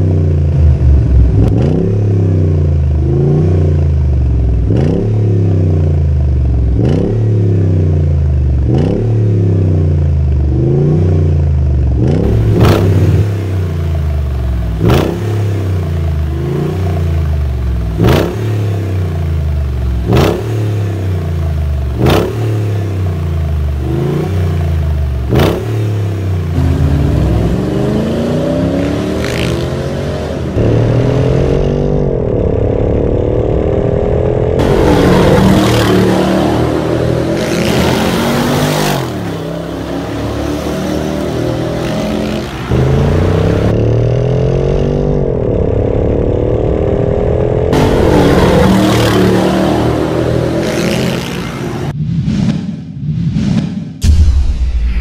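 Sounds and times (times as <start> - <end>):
engine accelerating hard: 10.5 - 51.9.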